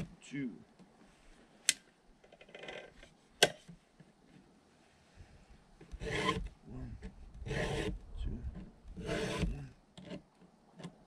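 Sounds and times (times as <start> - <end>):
file rasping on chainsaw chain: 6.0 - 6.4, 7.5 - 8.0, 9.0 - 9.6.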